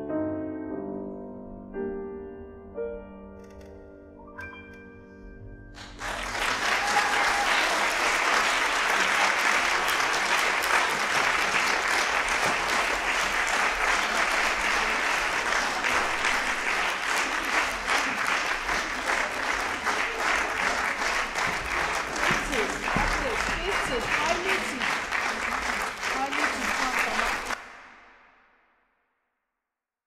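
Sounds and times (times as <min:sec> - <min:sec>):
piano chord: 0:00.0 - 0:05.9
audience applause: 0:05.8 - 0:27.9.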